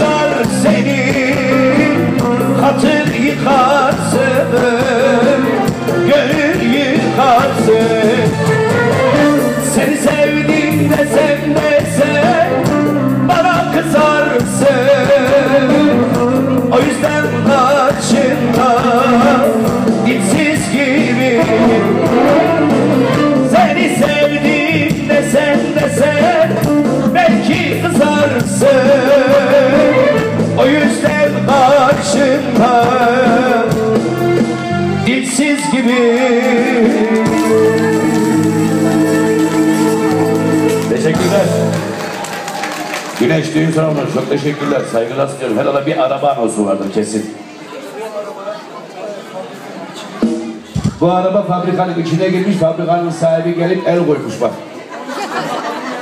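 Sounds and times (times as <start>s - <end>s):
man singing into microphone: 0.0s - 41.7s
band with steady bass: 0.0s - 47.1s.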